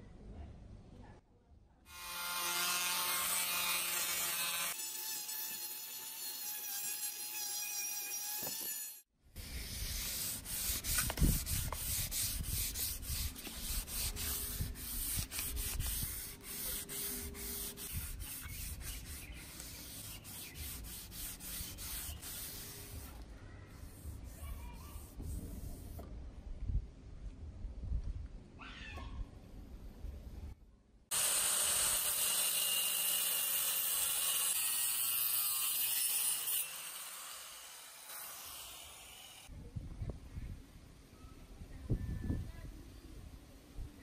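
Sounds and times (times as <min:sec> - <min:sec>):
sandpaper rubbing on wood: 0:09.4 - 0:26.0.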